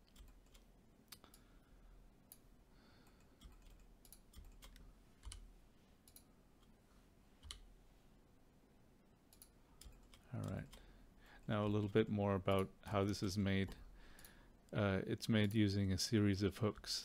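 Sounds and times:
computer mouse clicks: 0.0 - 1.5, 2.3 - 6.8, 7.4 - 7.7, 9.3 - 10.9.

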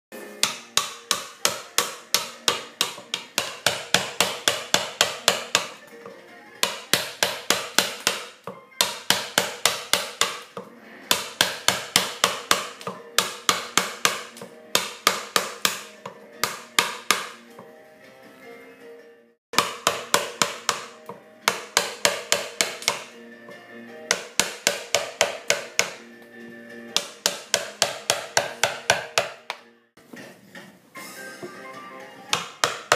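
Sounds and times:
mallet striking chisel: 0.4 - 5.8, 6.6 - 17.4, 19.5 - 23.2, 24.1 - 26.0, 27.0 - 29.7, 32.3 - 32.9.

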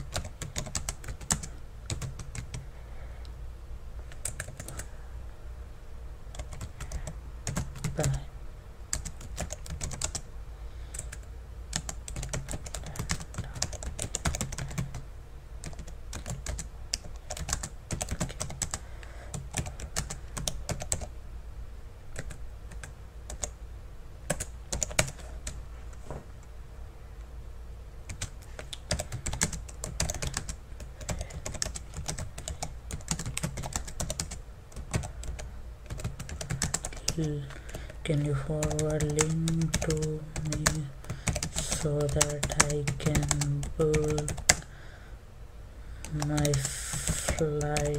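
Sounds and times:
keyboard typing: 0.0 - 2.6, 4.1 - 4.9, 6.3 - 8.2, 8.9 - 10.3, 10.9 - 15.0, 15.6 - 21.1, 22.1 - 23.6, 24.2 - 25.6, 28.1 - 44.7, 46.0 - 47.9.

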